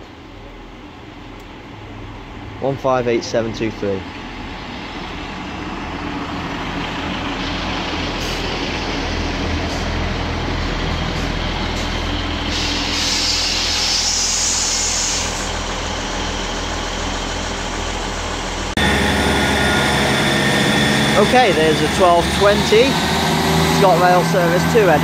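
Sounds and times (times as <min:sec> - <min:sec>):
train diesel engines running: 0:00.0 - 0:25.0
air brakes hissing: 0:07.3 - 0:08.9, 0:11.1 - 0:16.4.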